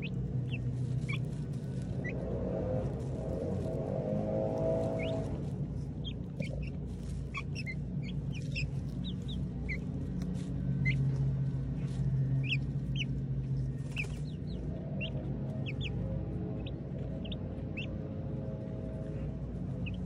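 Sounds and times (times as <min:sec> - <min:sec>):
chicks peeping: 0:00.0 - 0:20.0
steady low hum: 0:00.0 - 0:20.0.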